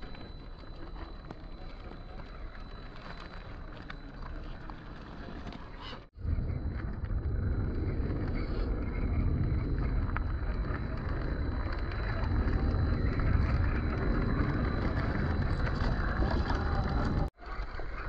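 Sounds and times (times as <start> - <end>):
electric drivetrain whirring: 0.0 - 18.0
wind rumble on microphone: 6.2 - 17.3.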